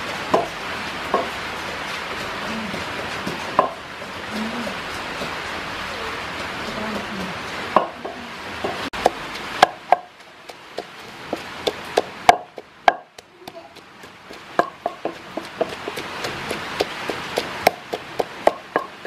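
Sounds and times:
wooden pestle pounding in mortar: 0:00.2 - 0:01.4, 0:02.1 - 0:03.8, 0:07.7 - 0:19.0.

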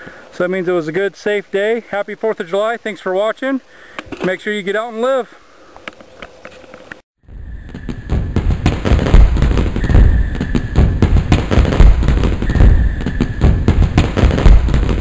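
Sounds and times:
deep rumble: 0:07.2 - 0:15.0
fireworks crackling and banging: 0:07.6 - 0:15.0.

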